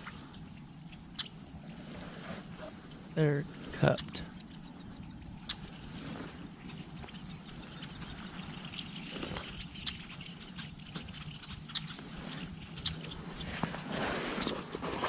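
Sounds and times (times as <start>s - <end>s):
bird chirps: 6.4s - 13.7s.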